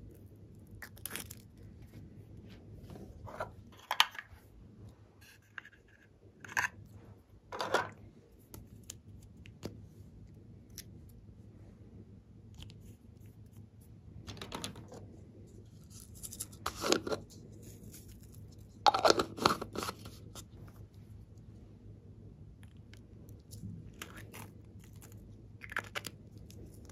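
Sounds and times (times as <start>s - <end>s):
hands handling craft items: 12.5s - 21.0s.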